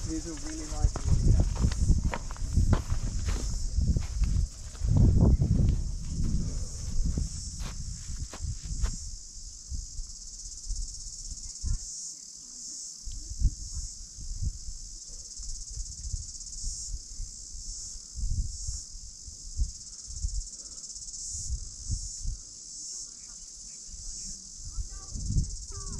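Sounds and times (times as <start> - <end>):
low thumps and rumbles: 0.0 - 9.2
insects shrill buzzing: 0.0 - 25.9.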